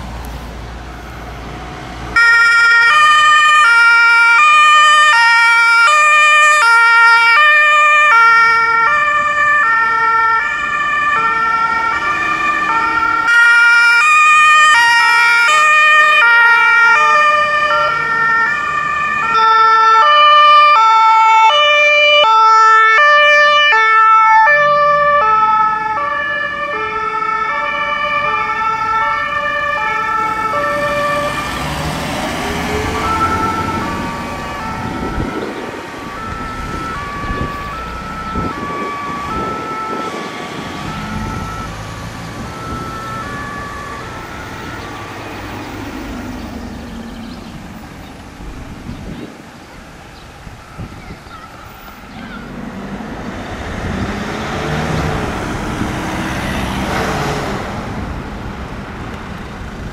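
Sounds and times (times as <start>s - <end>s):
two-tone emergency siren: 2.1s - 47.4s, 50.4s - 52.6s.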